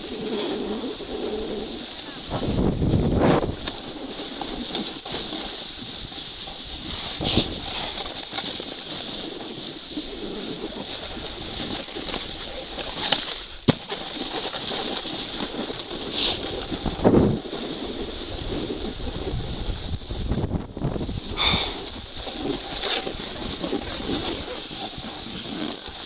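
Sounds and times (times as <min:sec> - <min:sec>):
wind on microphone: 0:00.0 - 0:13.6, 0:14.9 - 0:26.0
ski edges scraping snow: 0:00.0 - 0:26.0.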